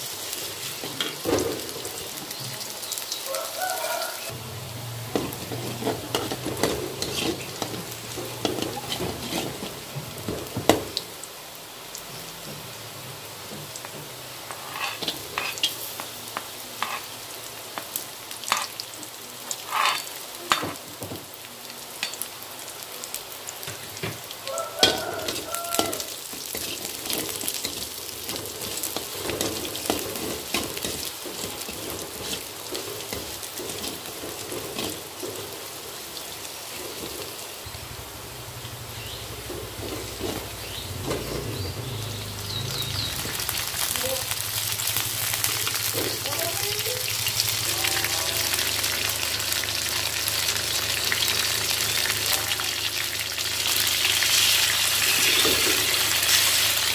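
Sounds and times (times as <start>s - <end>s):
shallots sizzling in oil: 0.0s - 56.9s
metal spatula scraping a wok: 5.1s - 9.9s, 14.5s - 16.0s, 16.8s - 17.2s, 19.6s - 20.6s, 24.8s - 35.6s, 54.0s - 56.9s.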